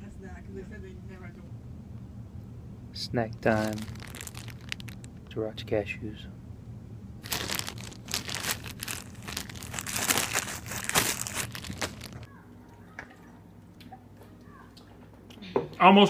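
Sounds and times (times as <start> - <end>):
plastic snack bag crinkling: 3.4 - 5.3, 7.2 - 12.3.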